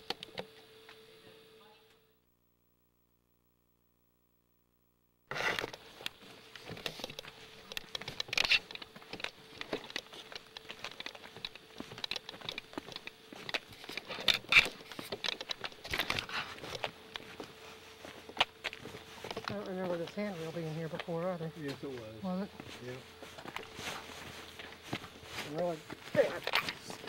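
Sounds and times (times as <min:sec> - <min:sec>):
faint steady hum: 0:00.0 - 0:27.0
camera handling noise: 0:05.3 - 0:17.4
footsteps crunching on rocky ground: 0:05.6 - 0:27.0.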